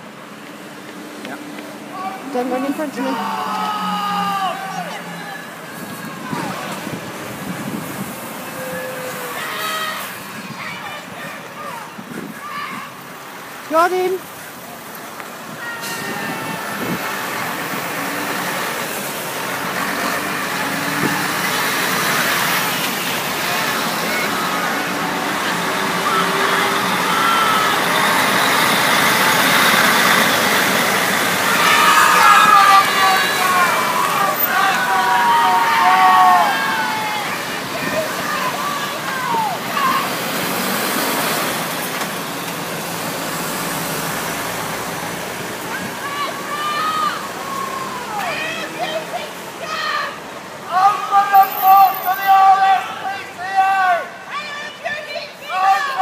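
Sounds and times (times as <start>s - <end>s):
lorry and van driving past: 15.4s - 48.2s.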